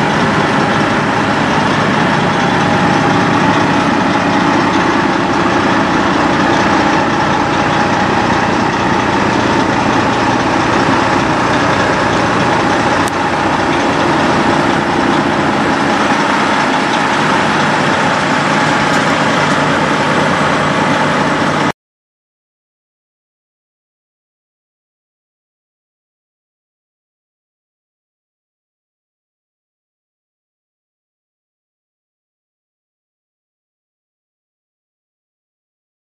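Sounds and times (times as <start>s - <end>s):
truck diesel engine idling: 0.0s - 21.7s.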